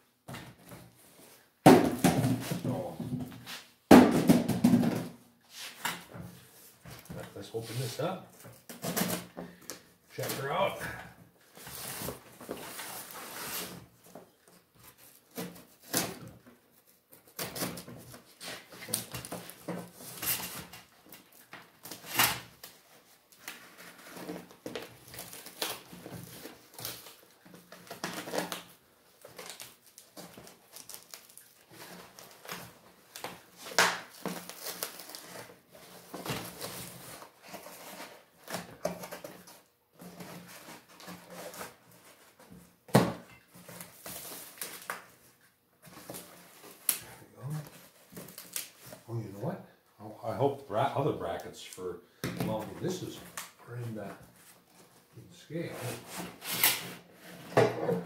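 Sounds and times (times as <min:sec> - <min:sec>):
packing tape cut and pulled: 0:17.2 - 0:41.8, 0:47.7 - 0:48.9, 0:55.7 - 0:57.4.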